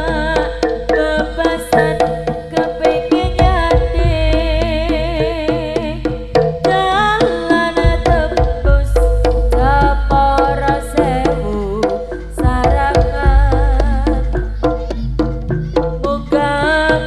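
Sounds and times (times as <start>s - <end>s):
hand drum strokes: 0.0s - 16.9s
deep sustained bass: 3.2s - 5.2s
wavering melody line: 7.0s - 16.6s.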